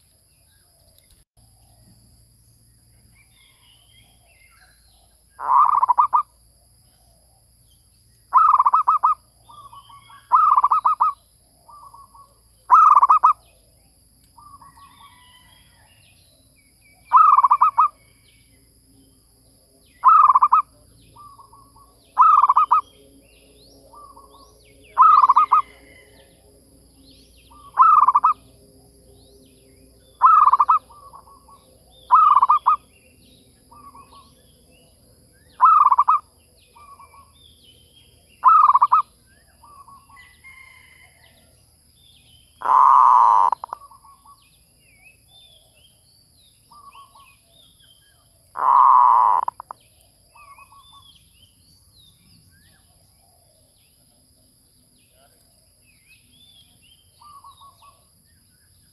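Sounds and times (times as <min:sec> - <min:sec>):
birds chirping: 0:00.0 - 0:58.9
dove cooing: 0:05.4 - 0:06.2, 0:08.4 - 0:09.2, 0:20.0 - 0:21.6, 0:22.2 - 0:22.8, 0:25.0 - 0:26.1, 0:27.5 - 0:28.4, 0:30.2 - 0:32.8, 0:35.6 - 0:36.2, 0:38.4 - 0:39.0, 0:42.6 - 0:44.2, 0:48.6 - 0:49.7.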